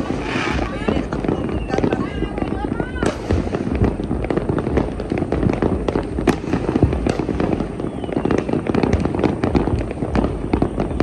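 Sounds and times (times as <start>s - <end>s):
fireworks crackling and banging: 0.0s - 11.0s.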